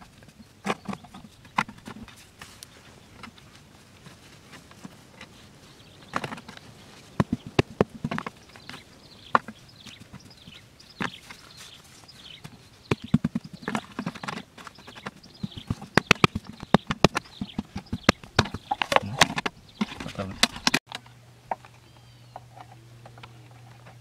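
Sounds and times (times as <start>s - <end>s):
hands patting and scraping soil: 0.0s - 24.0s.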